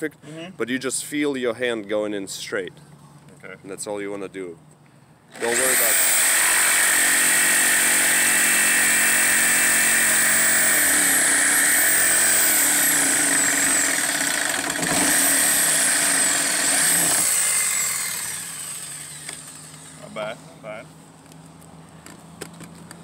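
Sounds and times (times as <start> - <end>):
jigsaw cutting wood: 5.3 - 20.0.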